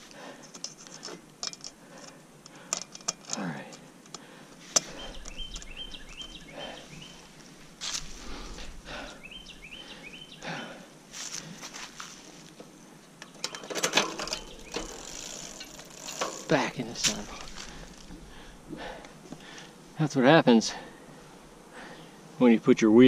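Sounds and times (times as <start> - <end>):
bird singing: 4.8 - 7.5, 8.5 - 10.7, 12.7 - 19.8
bicycle scuffing on leafy trail: 7.0 - 8.7, 11.1 - 12.6, 14.2 - 18.2.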